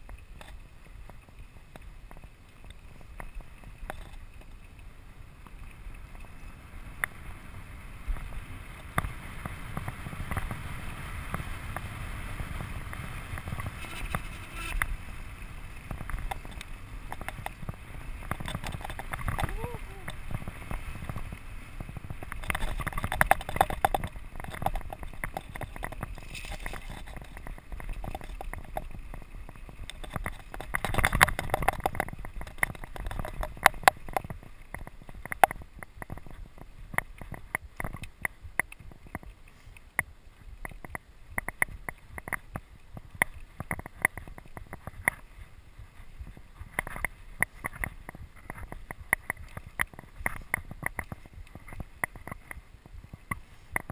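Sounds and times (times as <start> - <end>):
bike rattles and knocks: 0.0 - 4.7, 8.1 - 53.9
bike tyre rumble: 0.0 - 53.9
wind buffeting microphone: 5.1 - 53.9.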